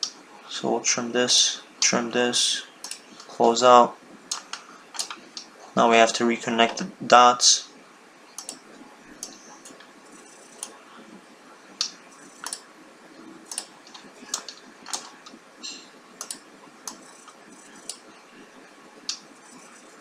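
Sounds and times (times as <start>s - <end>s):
faint steady hiss: 0.0s - 20.0s
computer mouse clicking: 2.8s - 3.1s, 8.4s - 8.6s, 9.2s - 10.8s, 11.8s - 12.6s, 13.5s - 15.2s, 16.2s - 18.0s.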